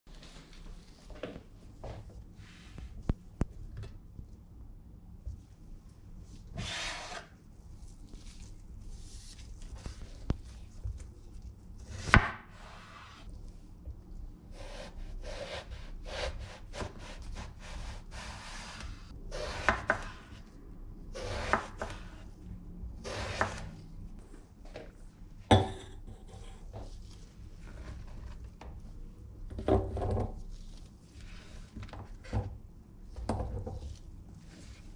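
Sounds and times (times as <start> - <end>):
knife scraping strokes: 6.6 - 7.3.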